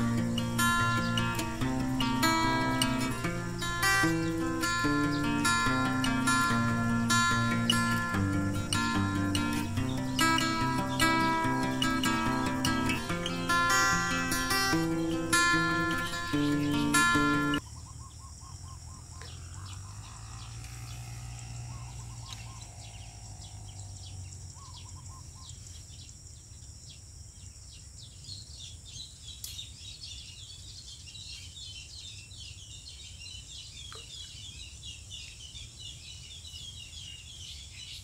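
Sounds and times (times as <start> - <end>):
high insect buzz: 0.0 - 17.6, 19.1 - 26.5
birds chirping and calling: 0.0 - 26.1, 28.6 - 38.0.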